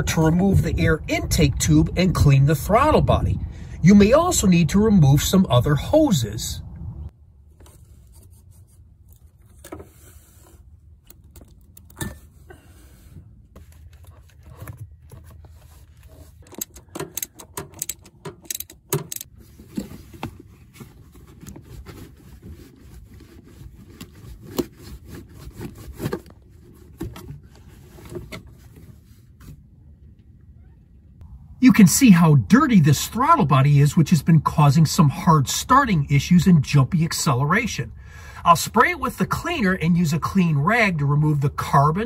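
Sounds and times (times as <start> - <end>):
rubber tube scraping and rubbing: 7.6 - 10.9, 19.3 - 29.6
metal clicks and rattles: 16.4 - 19.3.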